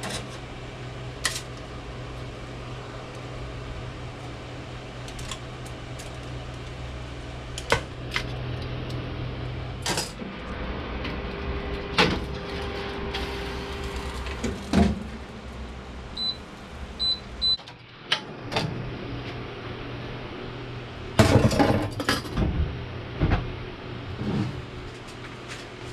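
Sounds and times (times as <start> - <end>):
low steady hum: 0.0 - 25.6
pan sliding into oven: 24.1 - 24.7.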